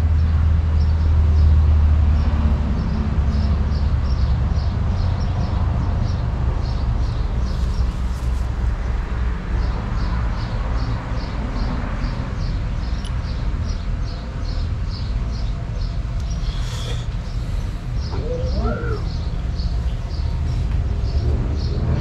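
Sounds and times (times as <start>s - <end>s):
bird chirping: 12.0s - 21.8s
rising and falling bird calls: 16.2s - 20.6s.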